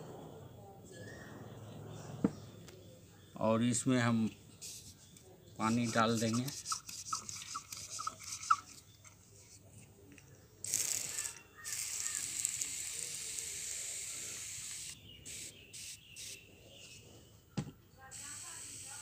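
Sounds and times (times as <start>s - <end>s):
pressure sprayer spraying water: 10.7s - 16.4s, 18.1s - 19.0s.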